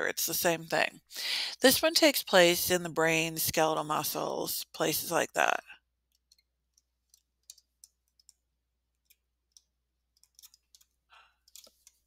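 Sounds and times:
stylus tapping on tablet screen: 6.0 - 12.0.

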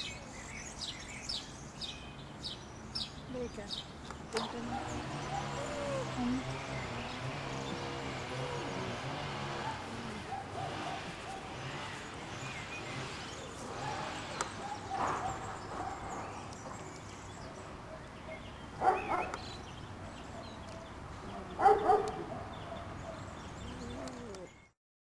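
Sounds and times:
puppies yipping and barking: 4.4 - 16.5.

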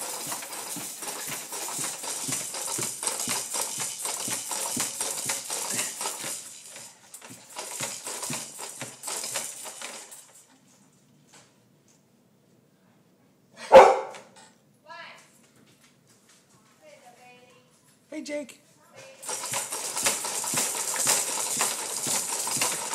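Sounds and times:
baby jumper rattling and clattering: 0.0 - 11.5, 19.0 - 22.9.

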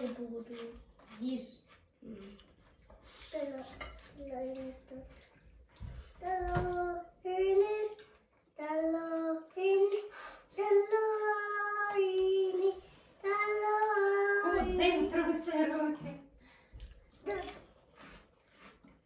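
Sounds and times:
child singing: 6.2 - 8.0, 8.6 - 15.0.

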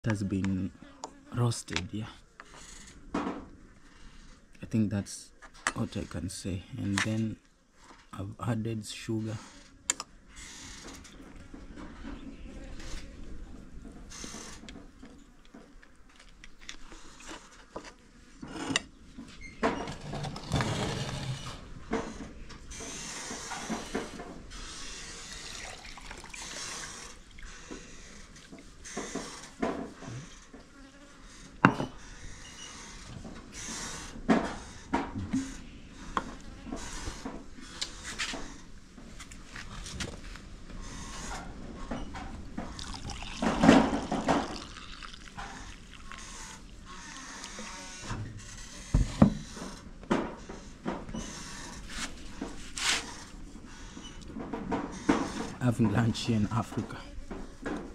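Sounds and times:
tea pouring into a mug: 25.3 - 27.2, 42.8 - 46.7
flask knocking on wooden table: 31.6 - 31.9.

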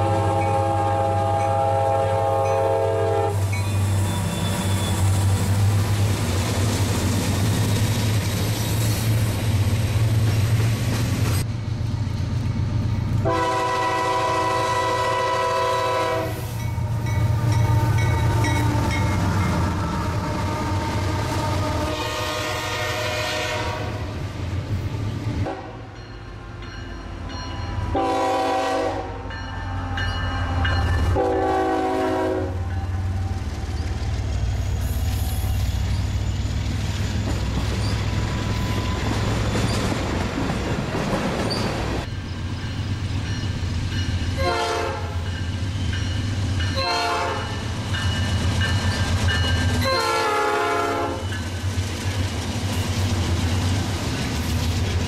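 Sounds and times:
locomotive air horn blasts: 0.0 - 5.0, 13.2 - 18.6, 20.0 - 24.0, 25.4 - 26.0, 27.9 - 30.0, 31.1 - 32.8, 44.4 - 45.2, 46.8 - 47.6, 49.8 - 51.3
freight train rumble and clatter: 0.0 - 55.0.

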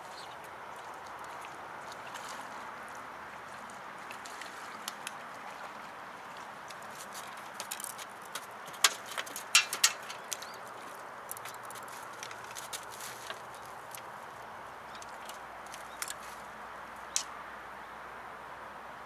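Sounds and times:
outdoor background hiss: 4.7 - 19.0
sharp clicks and knocks: 7.5 - 10.6.

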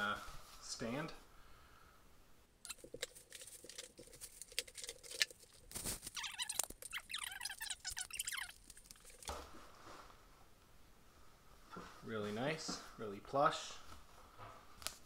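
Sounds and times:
plastic film crinkling and tearing: 2.7 - 9.4.

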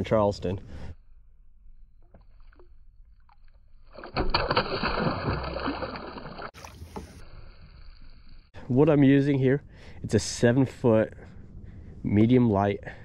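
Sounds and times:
fish splashing at surface: 3.8 - 7.0.

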